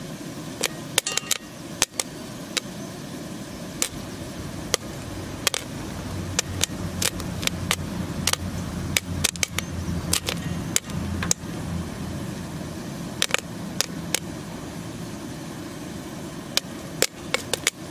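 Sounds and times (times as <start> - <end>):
popcorn popping in metal pan: 0.0 - 2.9, 3.6 - 11.6, 13.0 - 14.6, 16.4 - 17.9
steady low hum: 0.0 - 17.9.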